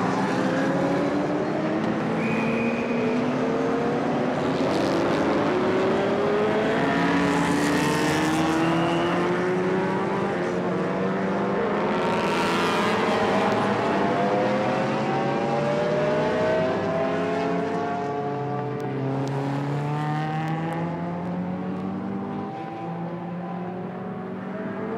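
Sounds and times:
cars passing by: 0.0s - 24.9s
racing car engines accelerating: 0.0s - 24.9s.

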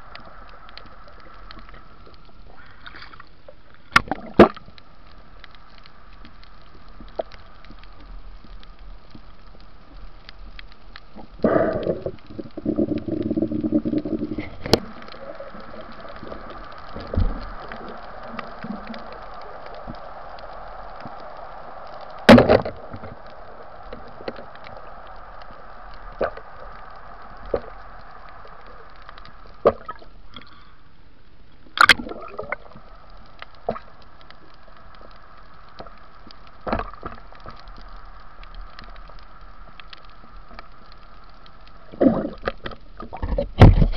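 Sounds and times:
underwater hiss: 0.0s - 31.0s, 31.7s - 43.9s
gurgling bubbles: 11.2s - 30.2s, 31.8s - 34.0s, 41.8s - 43.9s.

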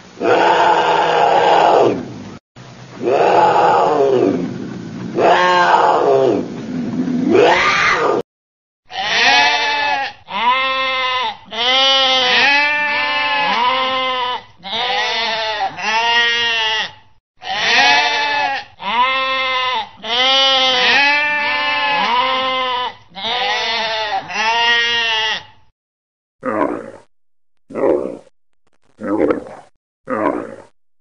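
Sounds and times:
sheep bleating: 8.9s - 25.6s.

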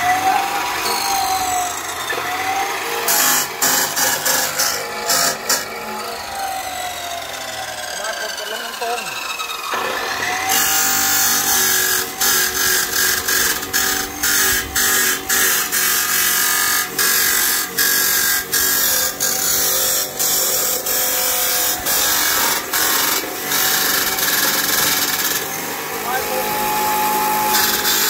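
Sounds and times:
chop saw grinding through steel: 0.0s - 28.0s.

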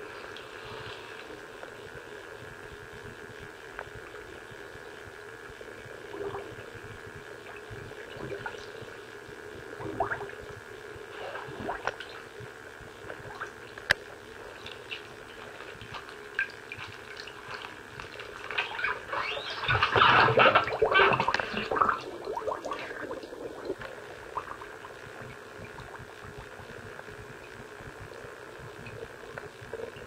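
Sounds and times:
water sloshing and splashing: 14.5s - 26.1s.

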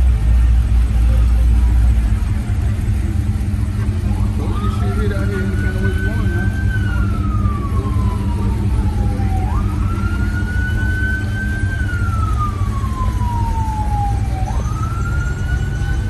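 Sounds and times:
low rumble: 0.0s - 16.0s
wailing siren: 3.6s - 16.0s.

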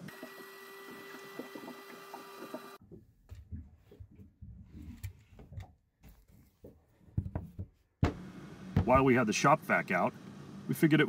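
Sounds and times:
knocks and clicks of handling: 4.9s - 8.2s.

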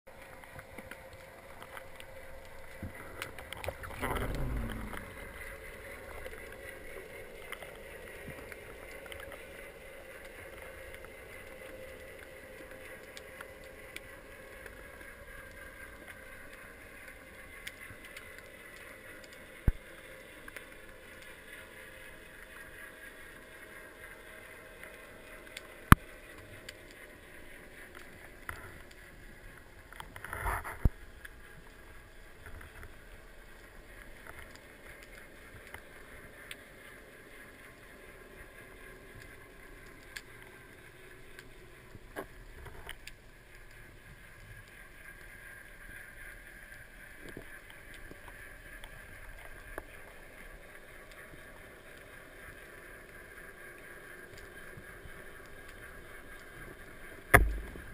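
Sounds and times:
dull underwater hiss: 1.1s - 57.9s
faint falling drone: 3.9s - 6.5s.

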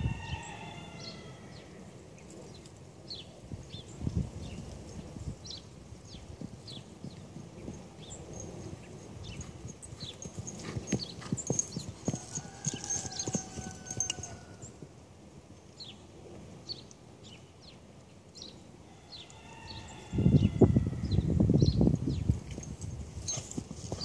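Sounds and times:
horse hoofbeats on dirt: 6.0s - 15.0s, 22.4s - 24.0s.

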